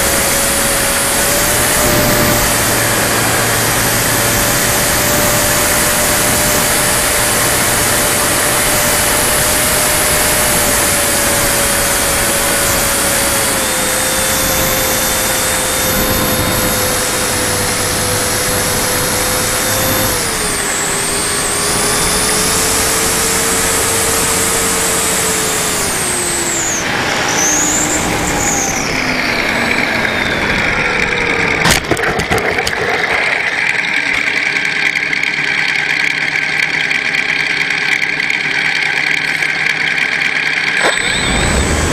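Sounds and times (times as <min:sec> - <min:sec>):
wind rush on camera: 0:00.0 - 0:24.9
model plane motor and propeller: 0:00.0 - 0:41.9.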